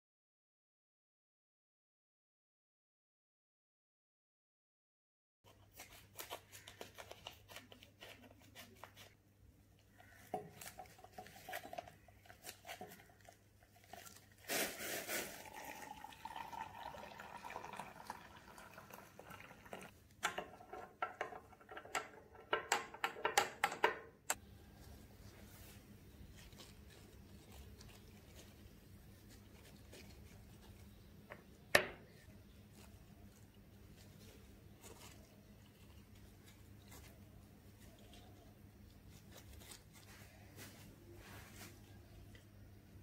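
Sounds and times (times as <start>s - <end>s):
liquid pouring into a jug: 13.0s - 20.0s.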